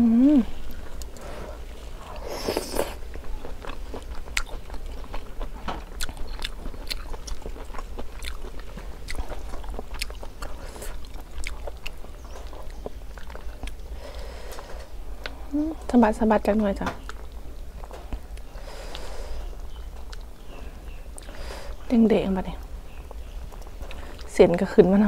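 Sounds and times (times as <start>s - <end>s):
person chewing: 0.5s - 14.8s, 17.0s - 20.5s, 22.9s - 24.3s.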